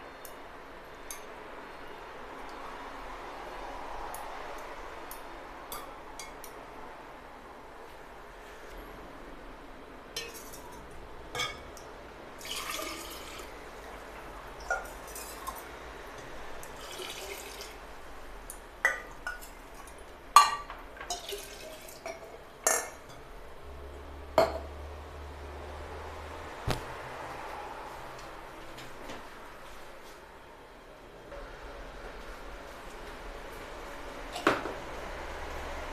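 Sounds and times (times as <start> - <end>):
liquid trickling and splashing: 12.4 - 13.5, 16.6 - 17.8, 21.1 - 22.3.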